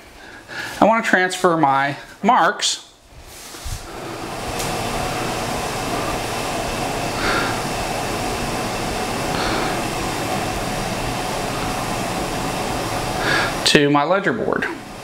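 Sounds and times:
rushing air fan noise: 3.0 - 15.0.

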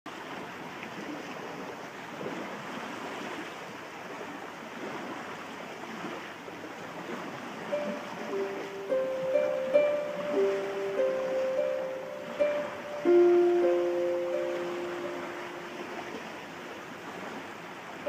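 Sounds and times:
harp notes: 7.7 - 16.2.

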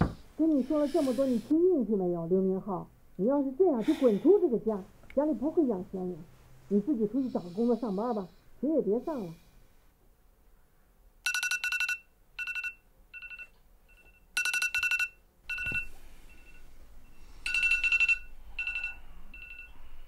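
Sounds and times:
phone alarm beeping: 11.3 - 19.9.

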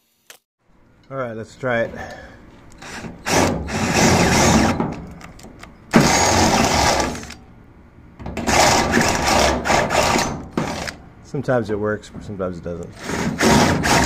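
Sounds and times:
drill cutting sheet steel: 2.8 - 4.8, 6.0 - 7.4, 8.5 - 11.0, 13.0 - 14.0.

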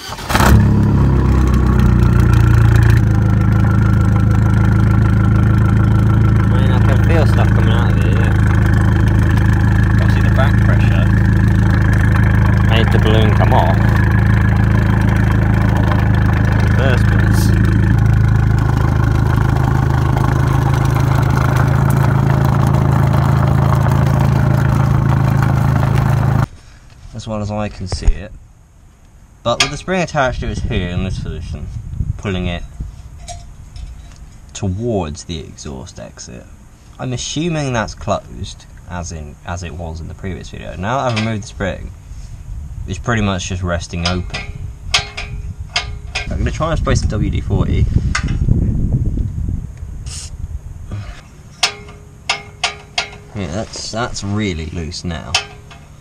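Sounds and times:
car engine starting and idling: 0.0 - 26.5.

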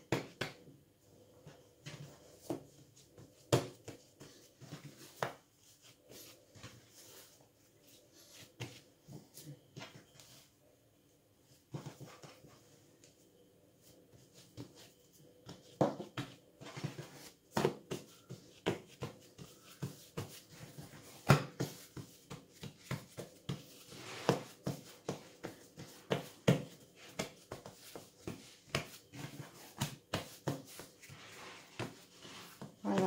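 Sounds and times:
hands slapping bread dough: 0.0 - 0.7, 17.2 - 33.0.

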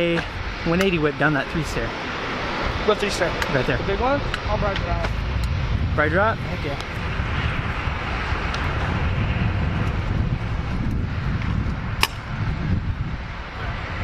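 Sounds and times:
wind buffeting microphone: 0.0 - 14.0
sharp click: 12.0 - 12.2.

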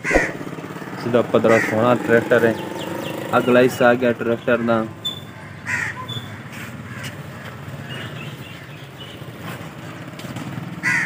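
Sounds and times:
tractor diesel engine idling: 0.4 - 4.9.

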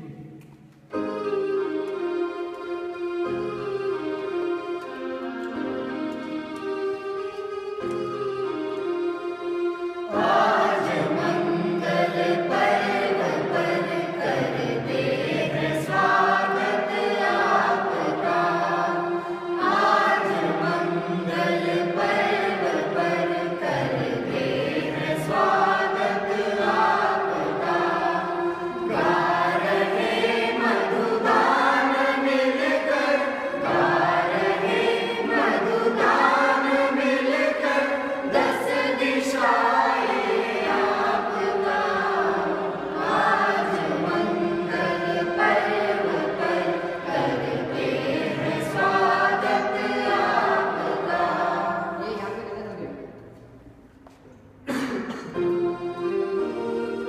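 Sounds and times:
electronic keyboard: 0.9 - 51.9, 55.4 - 57.0
group singing together: 10.1 - 52.8.

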